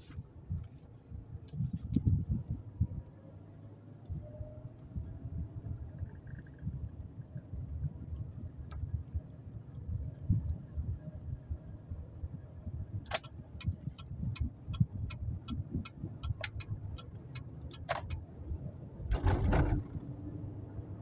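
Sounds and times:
car engine and road rumble: 0:00.0 - 0:21.0
turn signal ticking: 0:03.9 - 0:20.2.

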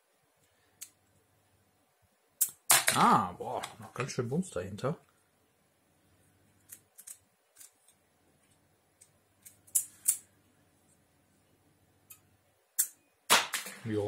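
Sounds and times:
plastic toy clicks and snaps: 0:12.8 - 0:13.0.

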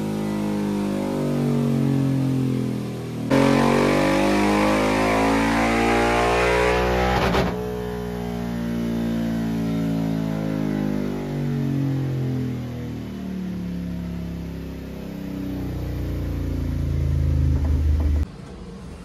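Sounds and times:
motorcycle engine revving: 0:03.3 - 0:12.4.

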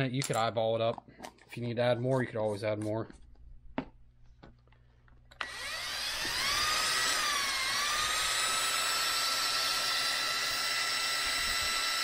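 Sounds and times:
drill whining: 0:05.3 - 0:12.0.

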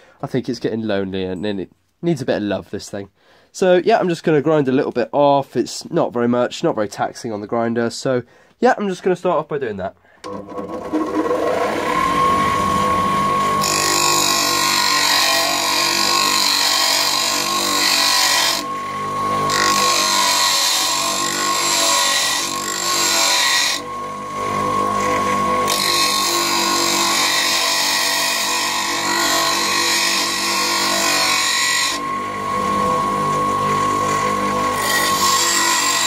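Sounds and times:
bench grinder motor whine: 0:10.2 - 0:36.0
steel grinding on wheel: 0:10.6 - 0:36.0.

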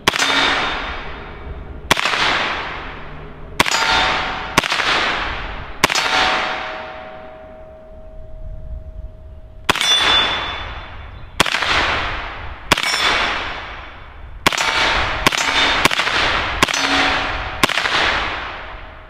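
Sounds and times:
rifle shots: 0:00.0 - 0:01.3, 0:01.9 - 0:07.0, 0:09.7 - 0:19.0
gunshot echo: 0:00.0 - 0:07.6, 0:09.7 - 0:19.0
ringing tone: 0:06.3 - 0:11.4.

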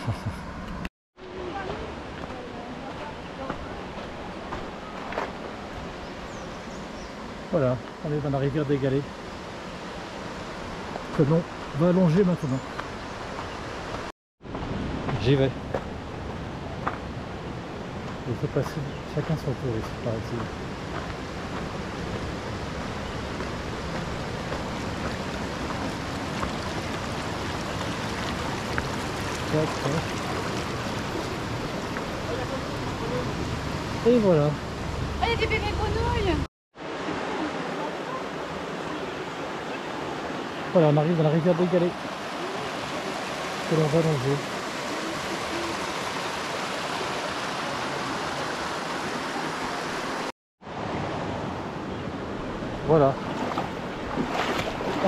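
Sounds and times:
river rushing over stones: 0:20.1 - 0:35.9, 0:36.8 - 0:55.0.

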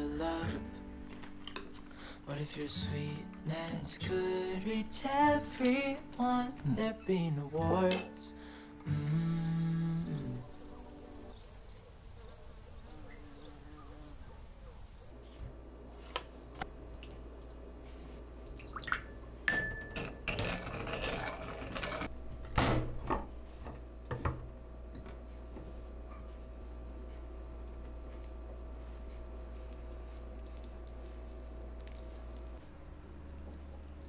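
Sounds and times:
steady low hum: 0:08.4 - 0:34.0
utensils clinking on glassware: 0:19.5 - 0:22.1
pouring or stirring: 0:20.0 - 0:22.1.

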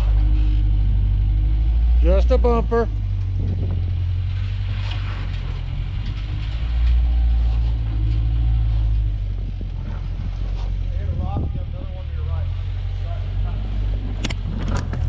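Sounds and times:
truck engine rumble: 0:00.0 - 0:15.0
rocks knocking and crunching: 0:14.0 - 0:15.0.

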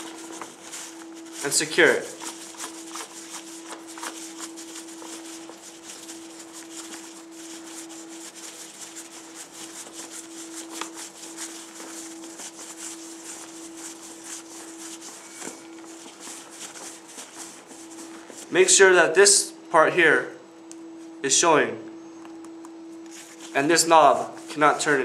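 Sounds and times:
fabric rustling and crinkling: 0:00.0 - 0:18.5
steady hum: 0:00.0 - 0:25.0.

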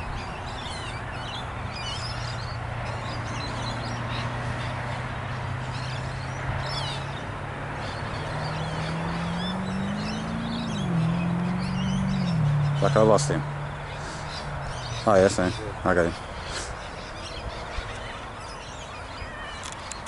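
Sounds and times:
birds chirping: 0:00.0 - 0:20.0
distant model aircraft motor droning: 0:00.9 - 0:12.9.

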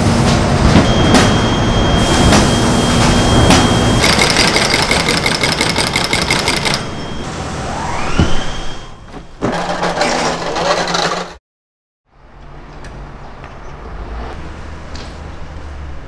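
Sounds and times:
factory machinery clattering: 0:00.0 - 0:07.4
machine whine: 0:00.0 - 0:11.2
machine hum: 0:00.0 - 0:11.4.

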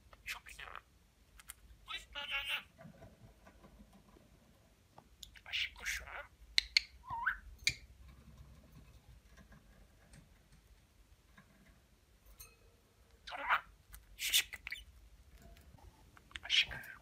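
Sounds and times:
budgerigar chirping: 0:05.2 - 0:07.8.

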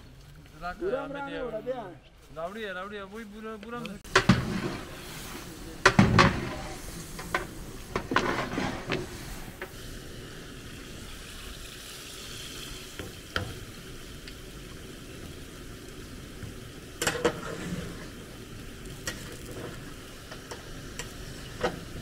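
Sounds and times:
stirring knocks: 0:04.0 - 0:05.0, 0:05.8 - 0:09.7
food sizzling in a pot: 0:04.0 - 0:22.0.

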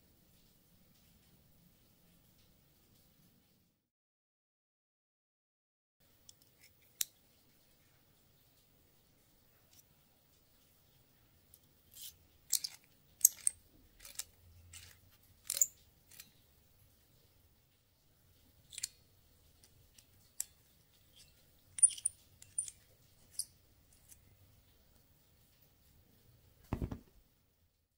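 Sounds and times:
small metal parts clicking: 0:11.9 - 0:16.4, 0:18.6 - 0:19.0, 0:19.6 - 0:24.2.

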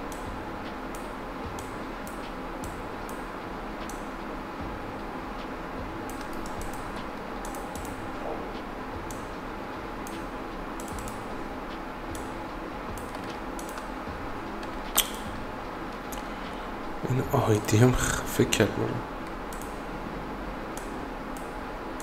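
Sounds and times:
steady background hiss: 0:00.0 - 0:22.0
computer keyboard and mouse clicks: 0:06.1 - 0:08.0, 0:10.8 - 0:11.2, 0:13.0 - 0:13.9, 0:14.6 - 0:15.4.

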